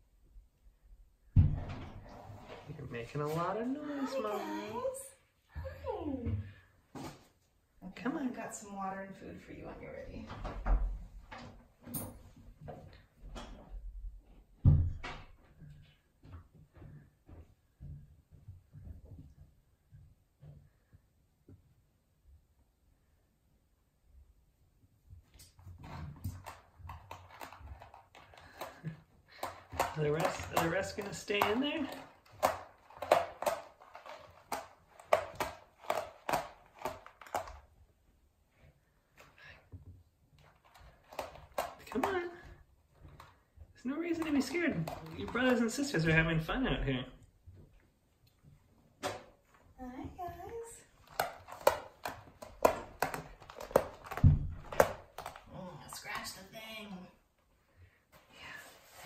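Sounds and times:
thump: 0:01.3 - 0:02.1
kittens knocking in plastic pet carrier: 0:25.8 - 0:37.6, 0:51.0 - 0:55.5.

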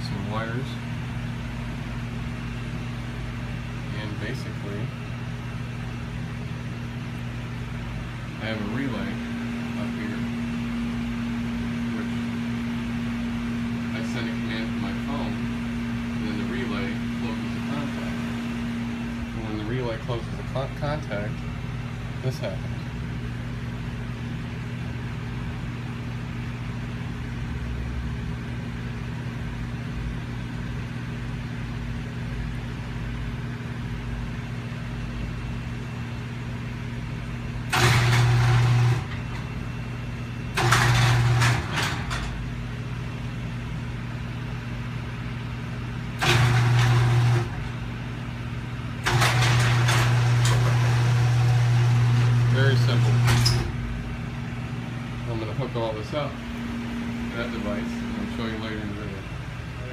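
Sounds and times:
garage door opener motor: 0:37.5 - 0:42.8, 0:46.0 - 0:54.8.

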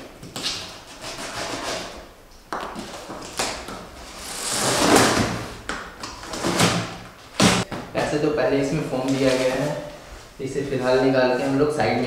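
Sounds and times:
packing tape ripping off box: 0:02.8 - 0:07.6.

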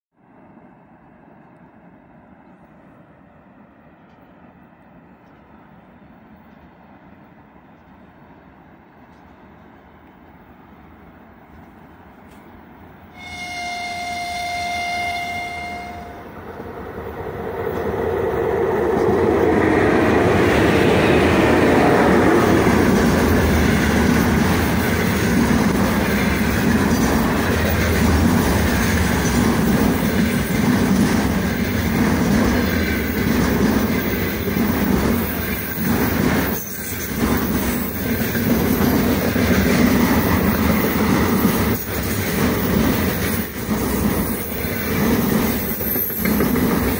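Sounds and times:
freight train rumbling past: 0:00.2 - 0:46.9
locomotive horn blast: 0:13.1 - 0:16.4
wheels clacking on rails: 0:14.4 - 0:46.9.

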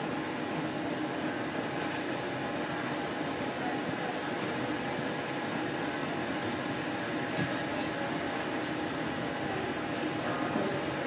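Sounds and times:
air conditioning hum: 0:00.0 - 0:11.0
train running noise: 0:00.0 - 0:11.0.

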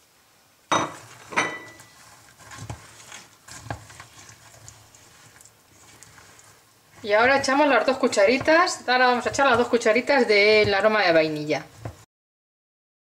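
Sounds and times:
spatula scraping saucepan: 0:00.9 - 0:12.1
spatula knocking against pan: 0:07.2 - 0:11.1.

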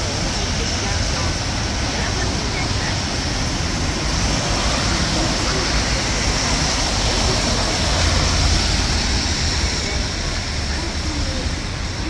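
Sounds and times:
city street noise: 0:00.0 - 0:12.0
rain hissing: 0:00.1 - 0:12.0.

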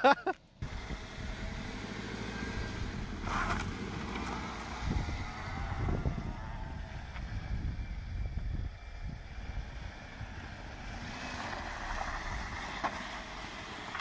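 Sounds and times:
wind rumble on microphone: 0:02.6 - 0:11.0.

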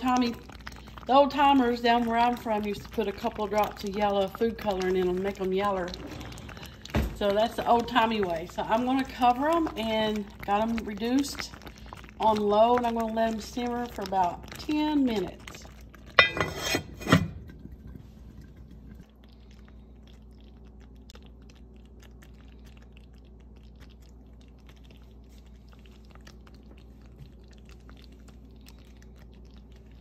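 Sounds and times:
broth bubbling pops: 0:00.0 - 0:16.4, 0:17.0 - 0:30.0
steady low hum: 0:00.0 - 0:30.0.

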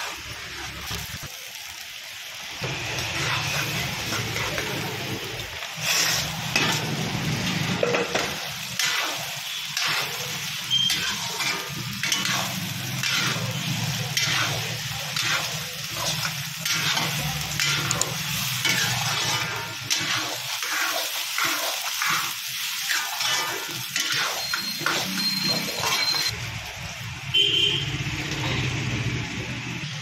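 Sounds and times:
oil sizzling in a wok: 0:00.0 - 0:30.0
metal spatula scraping pan: 0:05.8 - 0:07.0, 0:07.7 - 0:26.3.

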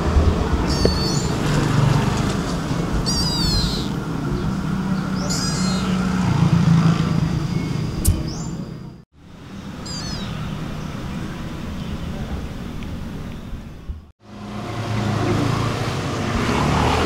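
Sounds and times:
kitten mewing: 0:00.7 - 0:01.3, 0:03.0 - 0:04.0, 0:05.2 - 0:06.0.

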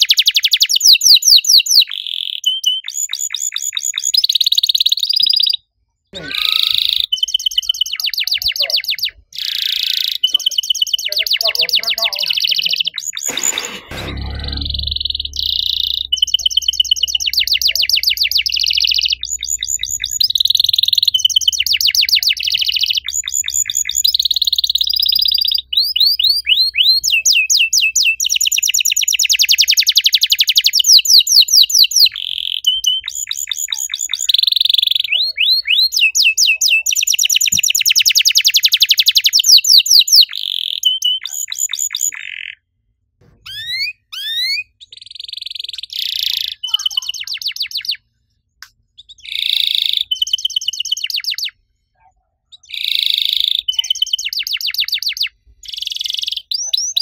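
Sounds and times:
canary singing trills: 0:00.0 - 0:42.7, 0:43.4 - 0:48.1, 0:48.9 - 0:51.6, 0:52.5 - 0:57.0
bird rising chirps: 0:06.2 - 0:42.6, 0:43.4 - 0:48.0.

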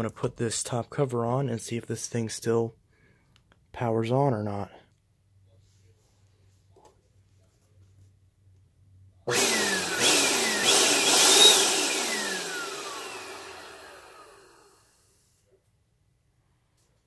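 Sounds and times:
motor winding down whine: 0:09.3 - 0:15.0
vacuum cleaner motor running: 0:09.3 - 0:15.1.

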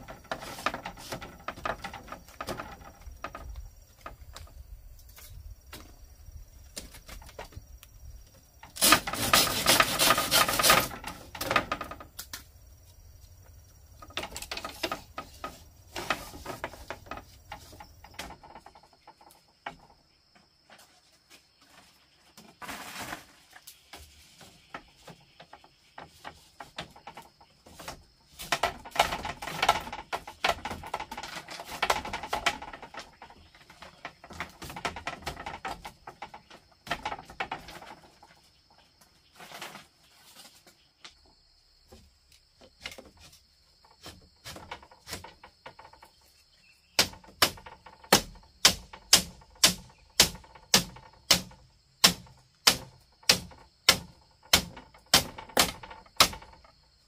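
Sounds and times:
chopping and scraping: 0:08.7 - 0:12.0, 0:42.6 - 0:46.0, 0:47.0 - 0:56.8
tools knocking on bamboo: 0:47.0 - 0:56.7.

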